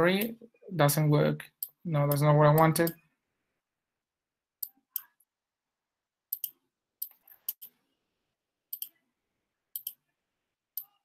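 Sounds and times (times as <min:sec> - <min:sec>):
computer mouse clicking: 0:06.3 - 0:07.8, 0:08.7 - 0:09.0, 0:09.7 - 0:10.0.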